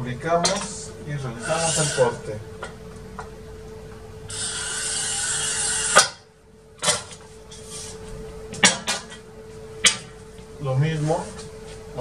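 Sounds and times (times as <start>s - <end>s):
glass cutter scratching glass: 1.4s - 2.2s, 4.3s - 6.2s.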